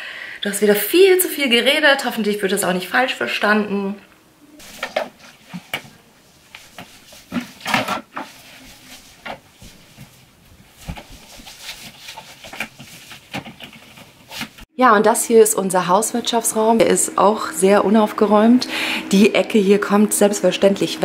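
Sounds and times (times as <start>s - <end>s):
objects knocking and bumping: 6.6s - 14.6s.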